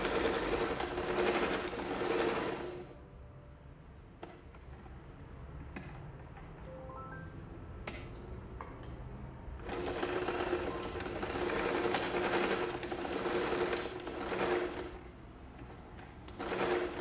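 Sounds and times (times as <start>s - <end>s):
sewing machine stitching: 0.0s - 2.9s, 9.6s - 17.0s.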